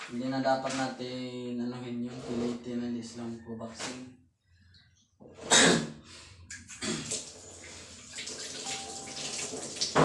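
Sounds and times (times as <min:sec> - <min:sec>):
tap water splashing into basin: 0:08.1 - 0:10.0.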